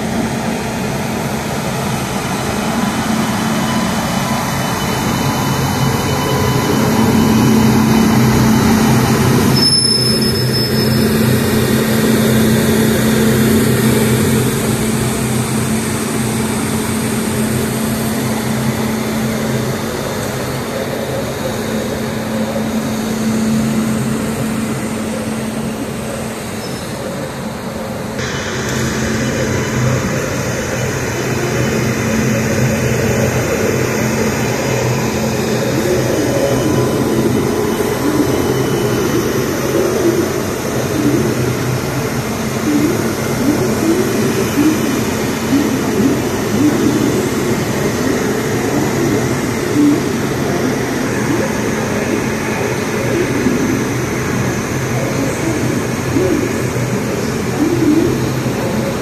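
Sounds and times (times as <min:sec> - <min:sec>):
electric locomotive hum: 0:00.0 - 0:59.0
wheels squeaking on rails: 0:00.5 - 0:59.0.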